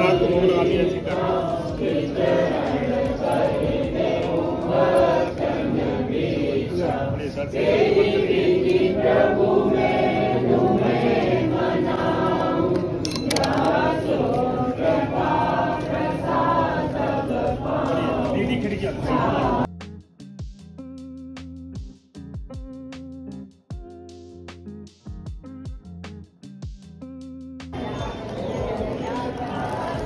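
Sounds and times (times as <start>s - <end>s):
crowd singing a chant: 0.0s - 19.7s, 27.8s - 30.0s.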